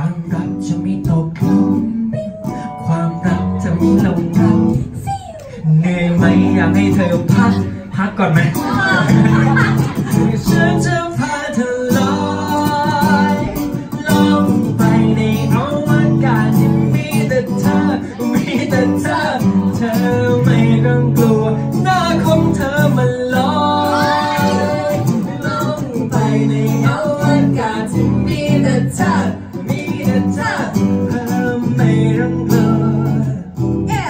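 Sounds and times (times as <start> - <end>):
acoustic guitar: 0.0 - 34.0
people singing into microphones: 0.0 - 34.0.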